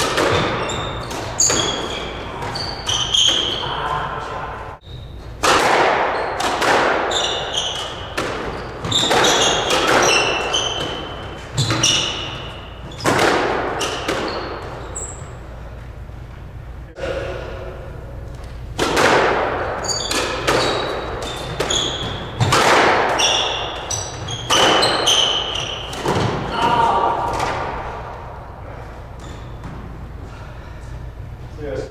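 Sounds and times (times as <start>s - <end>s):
shoes squeaking on hardwood floor: 0.0s - 4.2s, 7.1s - 16.6s, 19.8s - 26.3s, 29.1s - 30.1s
squash ball hitting rackets and walls: 0.0s - 15.9s, 17.0s - 31.3s.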